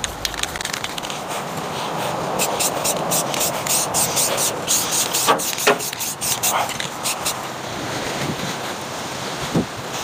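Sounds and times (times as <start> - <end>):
rapid crackle of small clicks: 0.0 - 1.2
aerosol spray can hissing: 0.6 - 7.4.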